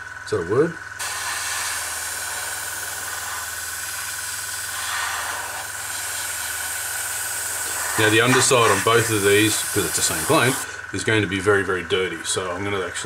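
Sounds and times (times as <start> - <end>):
air compressor humming: 0.0 - 13.0
airbrush air hiss: 1.0 - 10.9.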